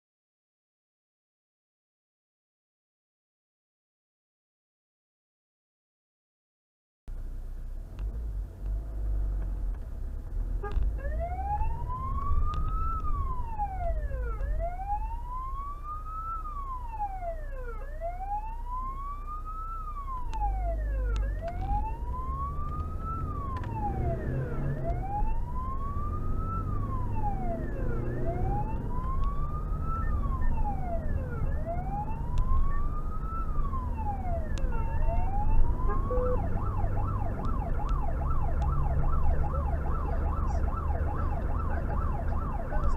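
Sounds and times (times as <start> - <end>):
engine and road noise: 7.1 - 42.9
electronic siren wailing: 11.0 - 42.9
siren fast yelp: 11.0 - 42.9.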